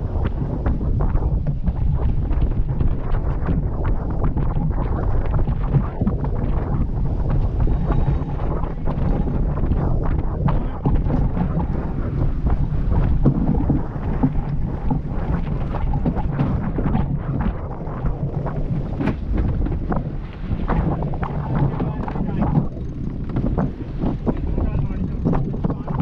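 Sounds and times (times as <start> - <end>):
water rushing along hull: 0.0 - 26.0
wind buffeting microphone: 0.0 - 26.0.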